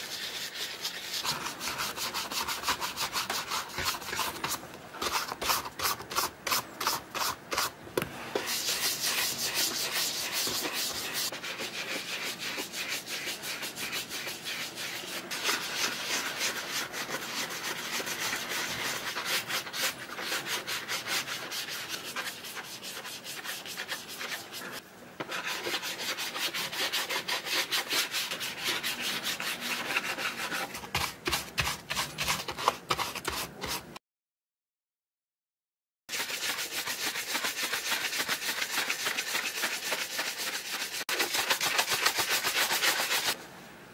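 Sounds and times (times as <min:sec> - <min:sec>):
brush scrubbing leather shoe: 0:00.0 - 0:07.7, 0:08.4 - 0:24.7, 0:36.1 - 0:43.4.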